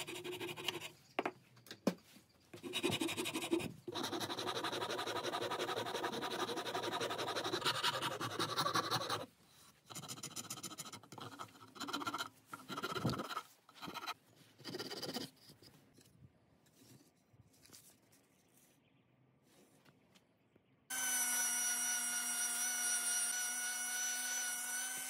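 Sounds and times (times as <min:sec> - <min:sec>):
file rasping on wood: 0:02.6 - 0:09.3.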